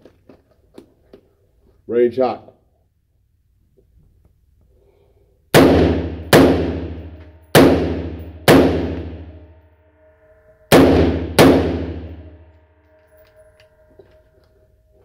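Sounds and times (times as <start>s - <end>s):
rifle shots echoing: 5.6s - 9.4s, 10.7s - 12.4s.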